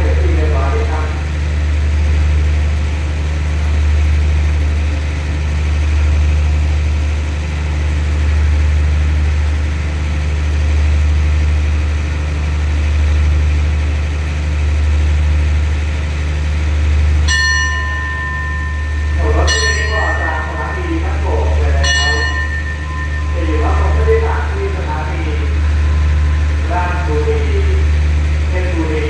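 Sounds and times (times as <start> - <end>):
diesel engine idling: 0.0 - 29.0
high steady tone: 17.3 - 28.9.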